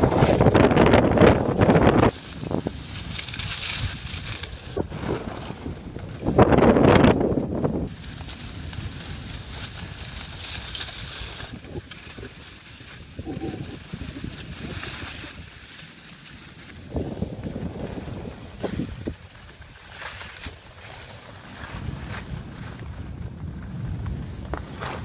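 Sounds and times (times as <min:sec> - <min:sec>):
wind buffeting microphone: 0:00.0 - 0:15.7, 0:16.6 - 0:19.7, 0:21.3 - 0:25.0
skis hissing over snow: 0:02.1 - 0:05.4, 0:07.9 - 0:16.8.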